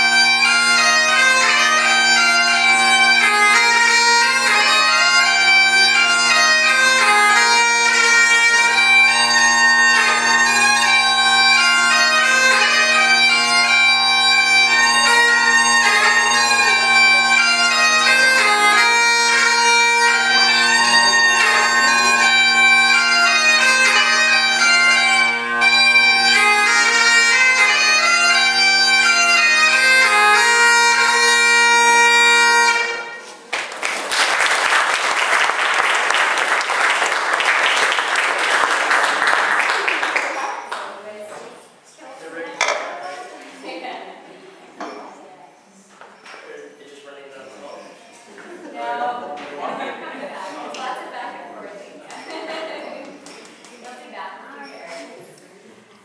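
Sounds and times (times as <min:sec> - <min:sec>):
bagpipes playing over drones: 0:00.0 - 0:33.4
audience applause: 0:33.4 - 0:41.0.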